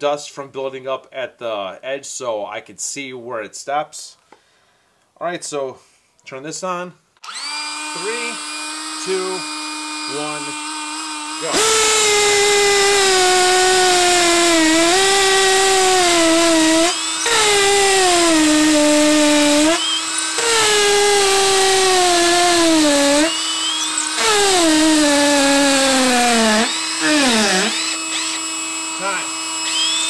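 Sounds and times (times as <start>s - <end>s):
blower humming: 7.2s - 30.0s
hammer drill boring into concrete: 7.2s - 30.0s.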